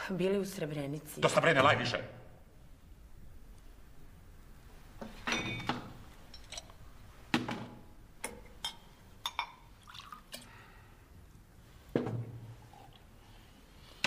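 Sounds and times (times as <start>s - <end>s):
glass knocks and clinks: 5.2s - 6.7s
liquor pouring into glass: 9.4s - 10.4s.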